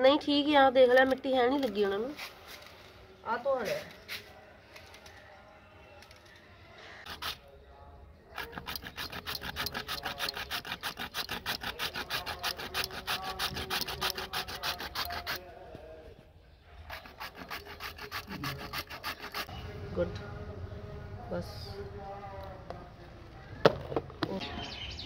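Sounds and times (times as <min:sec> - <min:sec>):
radish rasping on grater: 0:08.4 - 0:15.4, 0:16.9 - 0:19.5.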